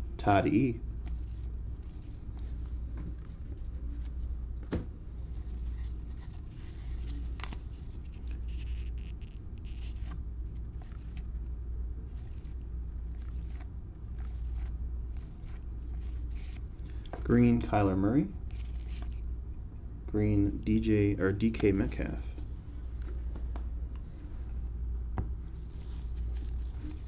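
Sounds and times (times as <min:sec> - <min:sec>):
steady low hum: 0:00.0 - 0:27.0
trading cards rustling and clicking: 0:05.3 - 0:11.4, 0:12.1 - 0:16.7, 0:18.5 - 0:19.2.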